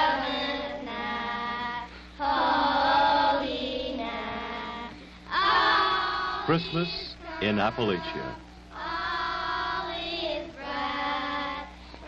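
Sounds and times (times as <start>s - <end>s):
children singing a carol: 0.0s - 11.7s.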